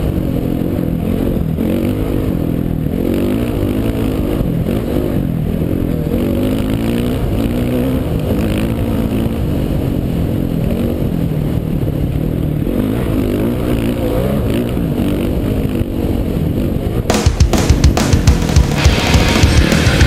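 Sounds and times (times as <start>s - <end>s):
dirt bike engine revving: 0.0s - 20.0s.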